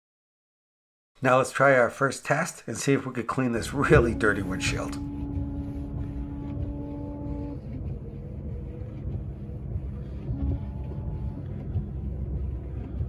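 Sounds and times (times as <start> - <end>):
steady whine: 3.3 - 13.0
pickup engine rumble: 3.6 - 13.0.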